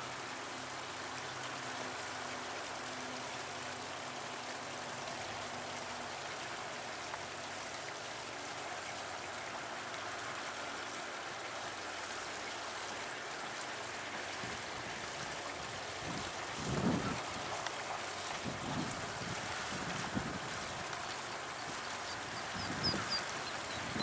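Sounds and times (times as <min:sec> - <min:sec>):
running water rushing: 0:00.0 - 0:24.0.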